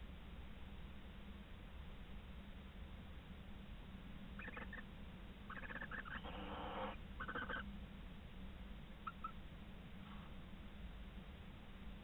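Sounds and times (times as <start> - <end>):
owl rattling calls: 4.4 - 4.8, 5.5 - 7.7, 9.0 - 9.4
owl hissing screech: 5.6 - 7.6.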